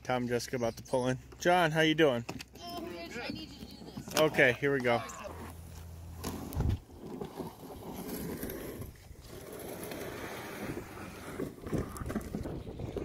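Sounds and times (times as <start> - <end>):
wind buffeting microphone: 10.6 - 13.0.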